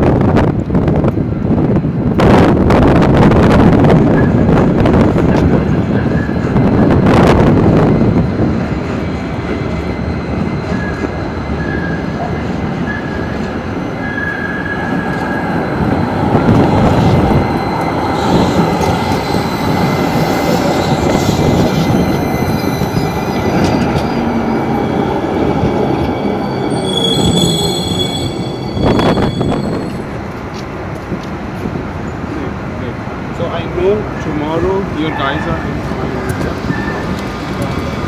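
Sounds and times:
tram wheels rumbling on rail: 0:00.0 - 0:38.0
high wheel squeals: 0:20.2 - 0:30.2.

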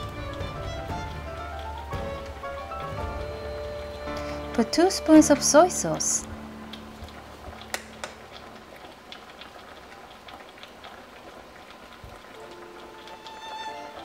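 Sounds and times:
soft music: 0:00.0 - 0:09.2, 0:11.8 - 0:14.0
water boiling and bubbling: 0:00.0 - 0:14.0
sharp clicks: 0:07.6 - 0:08.2.

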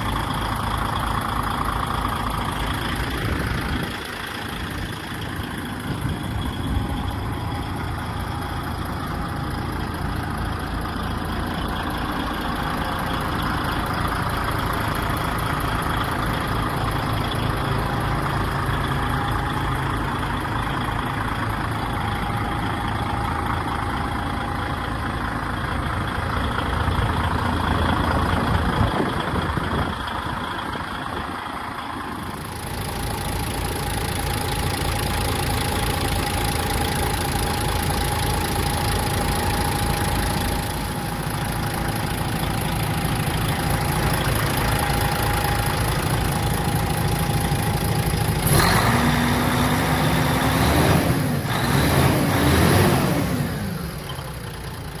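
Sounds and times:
diesel truck engine idling and revving: 0:00.0 - 0:55.0.

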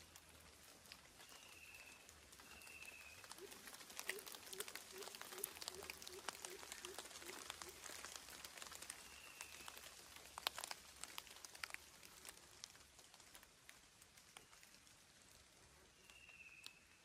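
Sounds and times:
water drops pattering on leaves: 0:00.0 - 0:17.0
faint whistle: 0:16.0 - 0:16.9.

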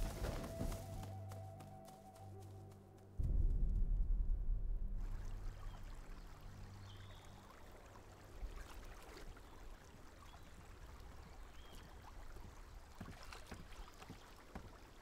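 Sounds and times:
lake water lapping: 0:05.2 - 0:15.0
paddle splashing: 0:07.8 - 0:15.0.

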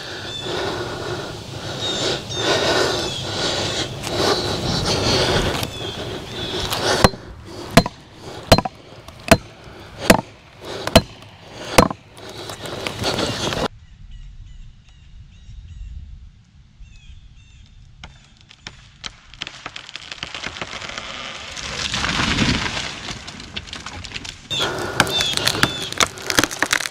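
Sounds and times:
hammer striking felling wedges: 0:06.7 - 0:13.7.

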